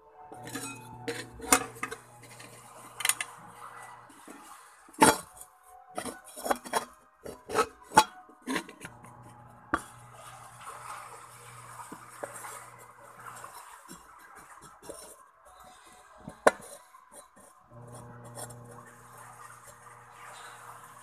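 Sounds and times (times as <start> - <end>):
low steady hum: 0.0 - 4.3, 7.9 - 13.6, 17.7 - 21.0
kitchenware clinking and knocking: 0.4 - 3.4.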